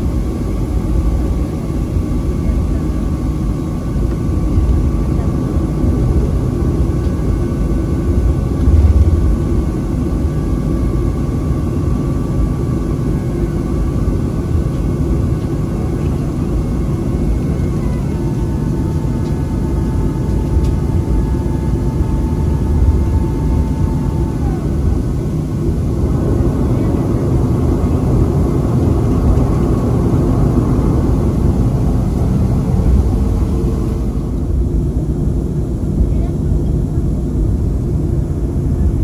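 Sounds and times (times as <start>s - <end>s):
low rumble of jet engines: 0.0s - 39.0s
low thump: 8.6s - 9.5s.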